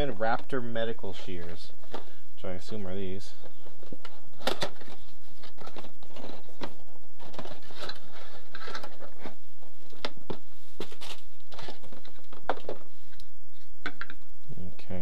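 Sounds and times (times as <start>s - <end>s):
cardboard packaging handled: 3.5s - 13.0s.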